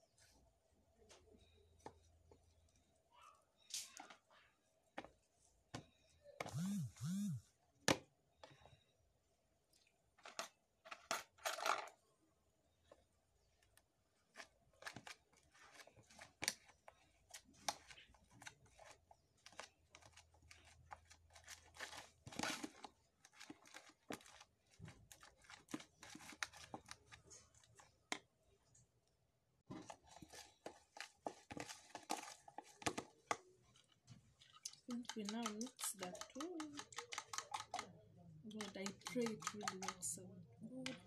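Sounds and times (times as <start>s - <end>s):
fork scraping plastic bowl: 34.6s - 37.9s, 38.6s - 40.2s.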